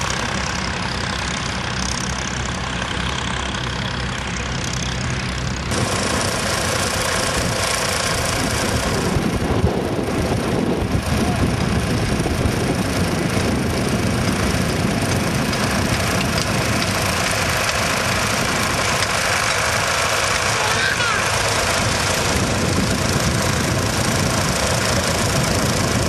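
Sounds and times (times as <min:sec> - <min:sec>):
tractor engine running: 0:00.0 - 0:26.0.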